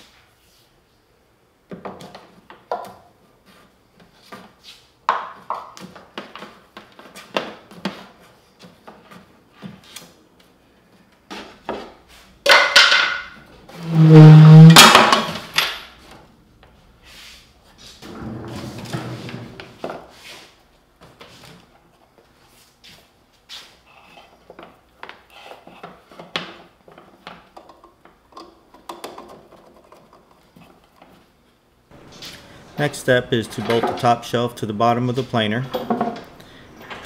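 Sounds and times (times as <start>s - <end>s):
hand tools clicking and knocking: 24.4s - 31.2s.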